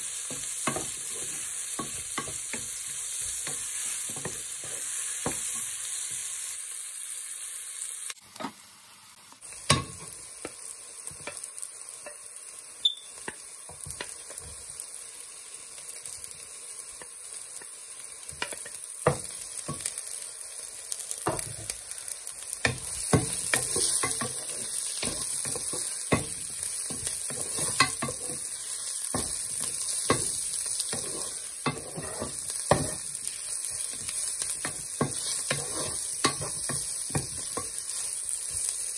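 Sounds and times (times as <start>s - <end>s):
onions sizzling in oil: 0.0s - 38.9s
wooden spoon knocking pan: 33.8s - 37.8s.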